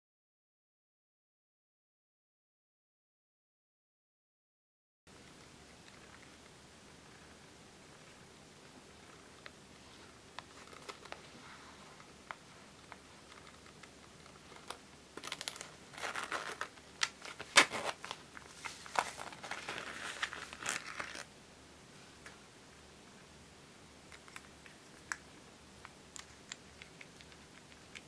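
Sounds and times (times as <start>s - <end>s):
purse crinkling and scratching: 10.5s - 11.3s, 12.8s - 21.3s.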